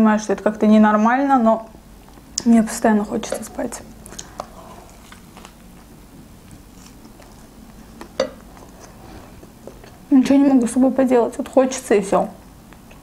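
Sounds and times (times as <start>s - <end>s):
person chewing meat: 3.9s - 10.1s.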